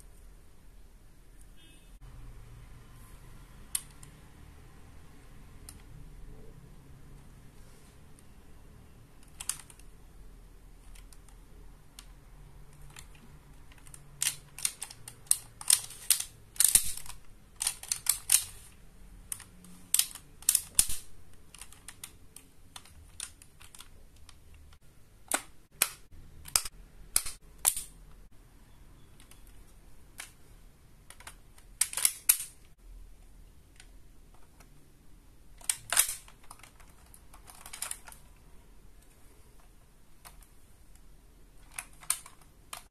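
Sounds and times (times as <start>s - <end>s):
plastic toy clicking and clacking: 9.2s - 9.9s, 10.8s - 18.6s, 19.3s - 28.0s, 31.0s - 32.7s, 35.6s - 38.4s, 41.6s - 42.9s.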